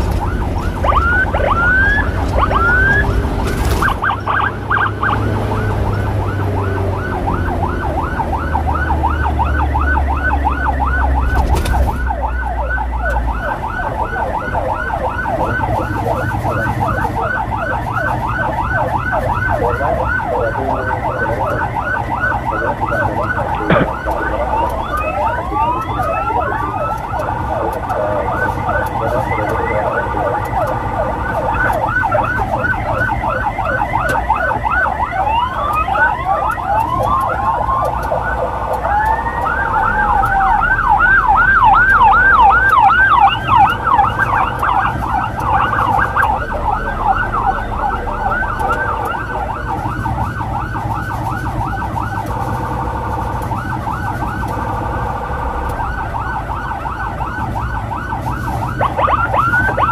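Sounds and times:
siren in a fast yelp: 0.0 - 59.9
siren with slow uneven sweep: 0.0 - 59.9.

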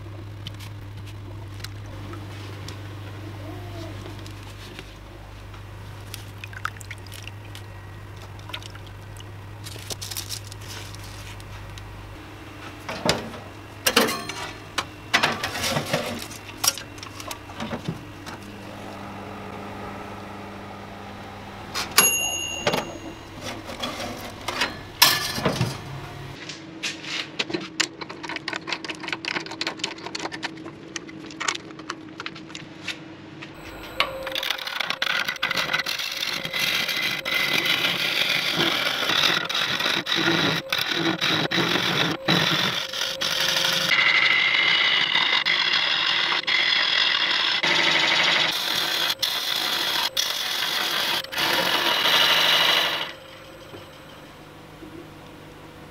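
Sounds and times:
steady low hum: 0.0 - 26.6, 48.6 - 55.9.

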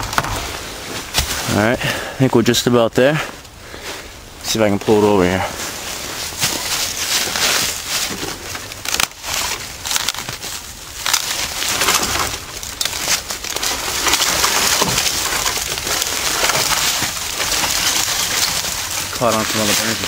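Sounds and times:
branches rustling: 0.0 - 20.0
tree trunk cracking and splintering: 5.8 - 20.0.

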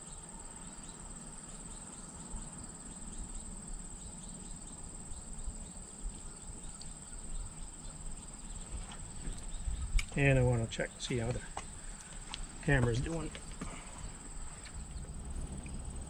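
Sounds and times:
insects trilling: 0.0 - 16.0
low rumble: 14.1 - 16.0.

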